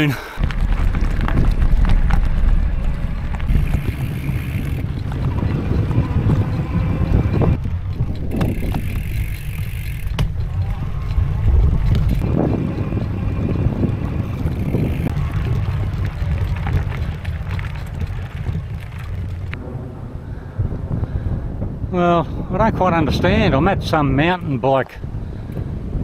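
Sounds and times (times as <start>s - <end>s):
tyres rolling on dirt trail: 0.0s - 19.8s
wind buffeting microphone: 0.0s - 26.0s.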